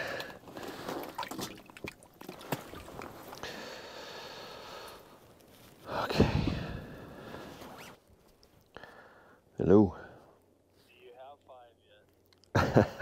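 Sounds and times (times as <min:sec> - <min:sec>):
water splashes and drips: 0:00.6 - 0:03.4.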